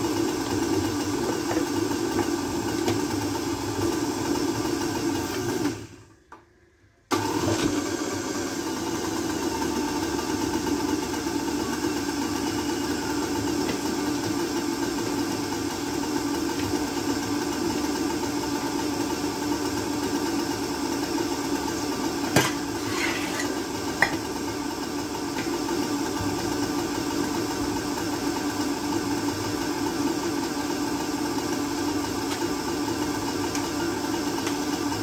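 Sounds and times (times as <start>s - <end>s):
blender motor running: 0.0s - 6.1s, 7.1s - 35.0s.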